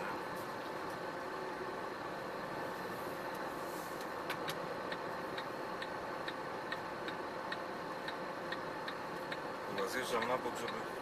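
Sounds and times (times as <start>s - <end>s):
truck engine humming: 0.0s - 11.0s
turn signal ticking: 4.3s - 11.0s.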